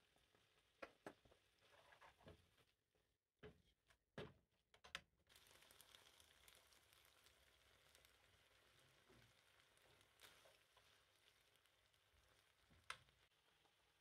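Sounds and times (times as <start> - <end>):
food sizzling in a frying pan: 5.3 - 14.0.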